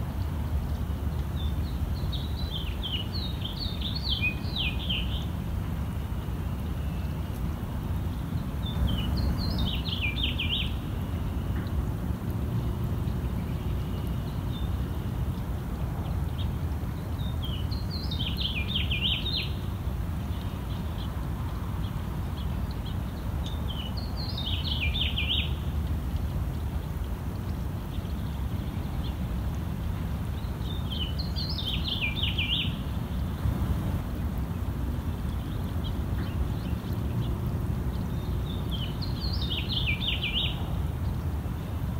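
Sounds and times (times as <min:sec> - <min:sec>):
songbird singing: 0:00.0 - 0:41.9
steady low rumble: 0:32.8 - 0:39.3.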